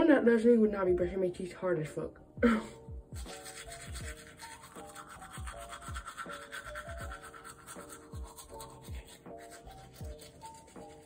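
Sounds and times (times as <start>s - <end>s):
background music with bass: 2.2s - 11.0s
toothbrush scrubbing teeth: 3.2s - 11.0s.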